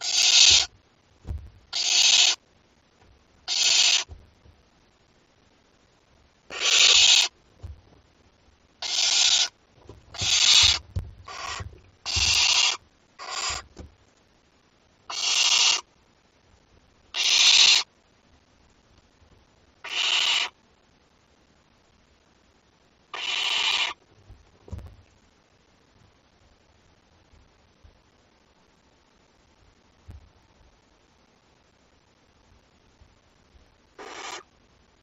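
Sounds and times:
owl chicks hissing: 0.0 - 0.7, 1.7 - 2.4, 3.5 - 4.2, 6.5 - 7.4, 8.8 - 13.8, 15.1 - 15.9, 17.2 - 17.9, 19.8 - 20.6, 23.1 - 24.0, 34.0 - 34.5.

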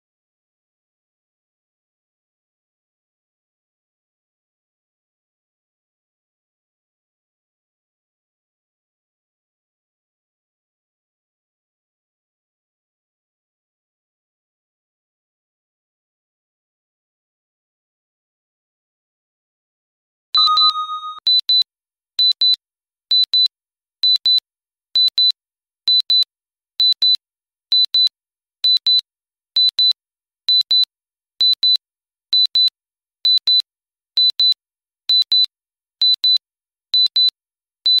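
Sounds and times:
high-pitched timer beeps: 20.4 - 21.2
low electronic tone: 20.4 - 21.2.

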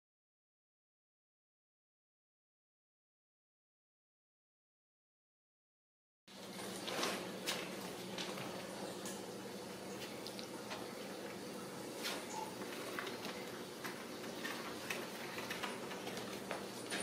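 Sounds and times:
low room hum: 6.3 - 17.0.

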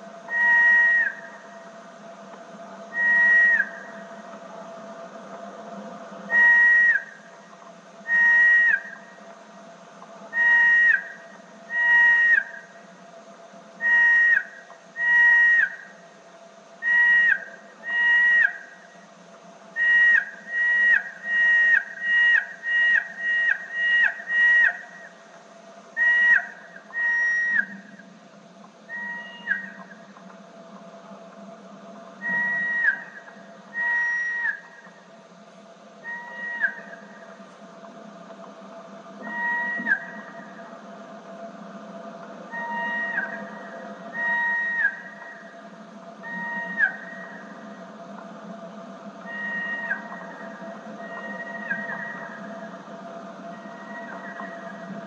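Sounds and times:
slowed bat calls as whistles: 0.3 - 1.6, 2.9 - 4.1, 6.3 - 7.3, 8.0 - 9.2, 10.3 - 12.8, 13.8 - 16.0, 16.8 - 19.0, 19.8 - 25.2, 26.0 - 28.1, 28.9 - 30.0, 32.2 - 35.0, 36.0 - 37.3, 39.2 - 40.6, 42.5 - 45.6, 46.2 - 47.7, 49.2 - 52.7, 53.5 - 54.9.

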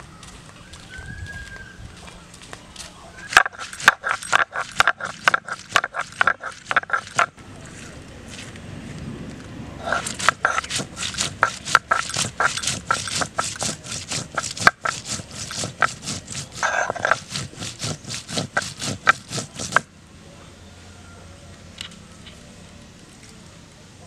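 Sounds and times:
stone roller crushing chillies: 3.2 - 8.6, 9.8 - 19.9.

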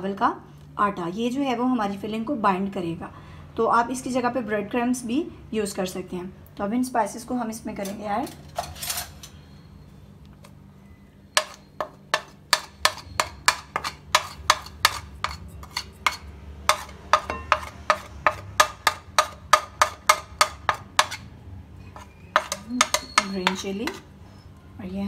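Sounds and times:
metal spoon tapping on ceramic: 11.4 - 21.2, 22.0 - 24.0.

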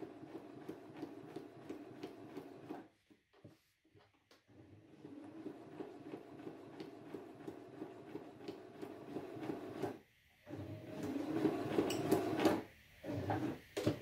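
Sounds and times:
sewing machine needle punching paper: 10.9 - 14.0.

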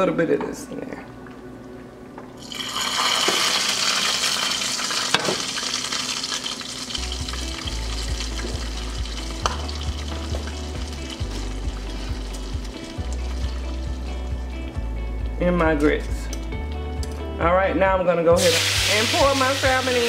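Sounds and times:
grease sizzling in frying pan: 2.4 - 14.4, 18.4 - 20.0.

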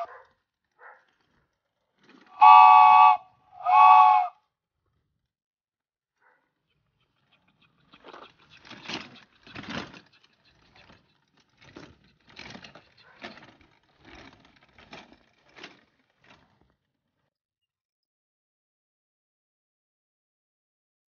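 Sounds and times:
toy wagon rolling over pavement: 0.0 - 5.1, 6.8 - 17.3.

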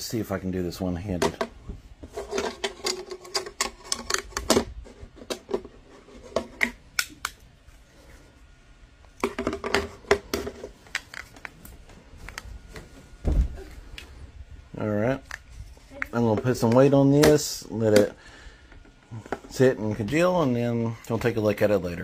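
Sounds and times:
plastic parts clicking and knocking: 1.2 - 7.4, 9.2 - 11.6.

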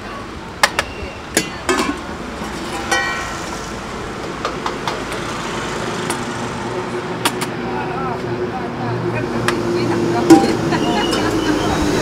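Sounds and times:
street traffic noise: 0.0 - 12.0
steel plates and bowls clinking: 1.4 - 3.6.

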